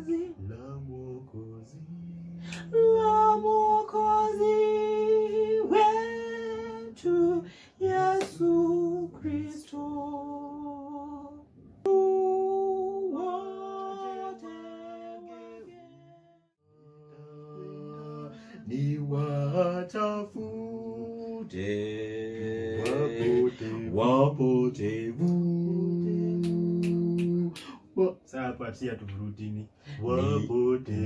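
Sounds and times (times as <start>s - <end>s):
voices singing a hymn in harmony: 0.0s - 11.3s, 11.9s - 16.1s, 16.8s - 26.5s, 29.9s - 31.0s.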